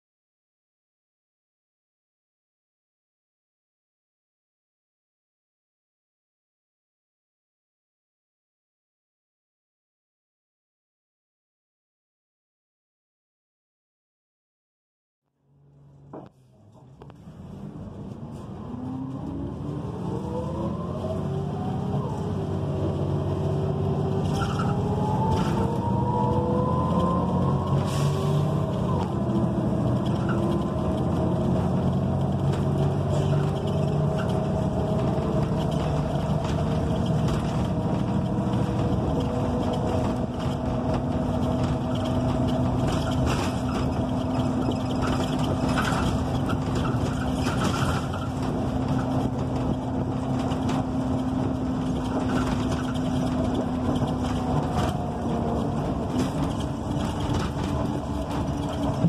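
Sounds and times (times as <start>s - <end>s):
bus engine whine: 15.3s - 59.0s
road noise: 15.3s - 59.0s.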